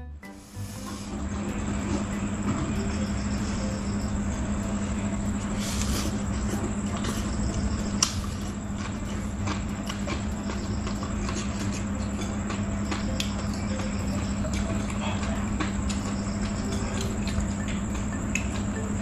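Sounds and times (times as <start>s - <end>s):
steady low hum: 0.0s - 19.0s
noodles slurped and chewed: 5.5s - 13.7s.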